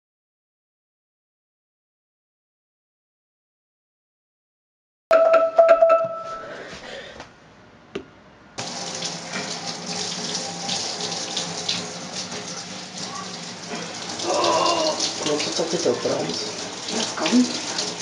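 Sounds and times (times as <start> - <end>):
short tone: 5.1 - 6.6
shower head spraying water on hair: 8.6 - 18.0.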